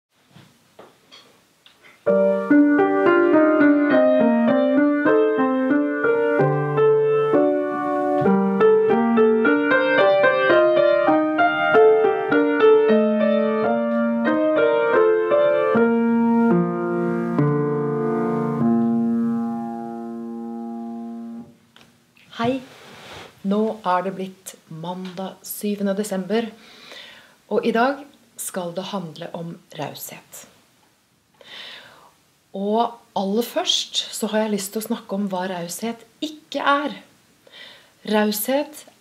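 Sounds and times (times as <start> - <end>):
upright piano playing: 2.0 - 21.6.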